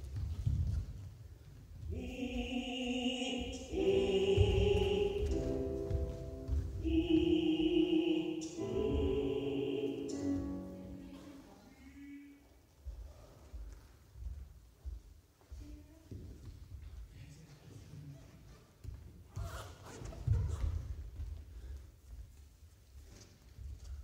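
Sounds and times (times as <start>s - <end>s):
choir singing: 1.9s - 11.4s
low thumps: 3.5s - 11.1s.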